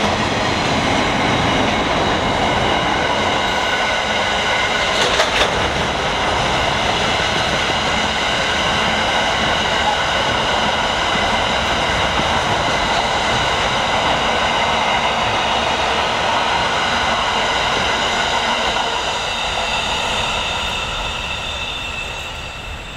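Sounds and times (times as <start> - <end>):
train wheels rumbling on rails: 0.0 - 22.9
high-pitched wheel squeal: 19.1 - 22.9.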